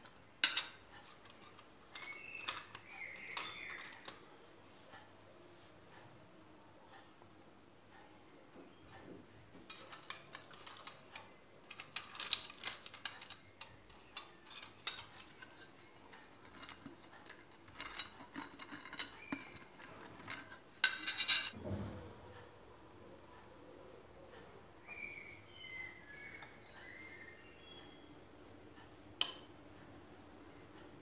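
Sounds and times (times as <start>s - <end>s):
dishes and utensils clattering: 0.0s - 4.2s, 9.6s - 21.9s.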